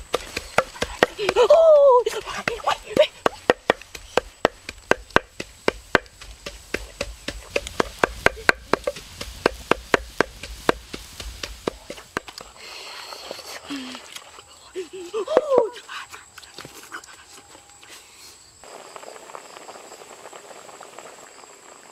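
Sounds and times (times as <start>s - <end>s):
eggs rattling in boiling pan: 18.7s - 21.9s.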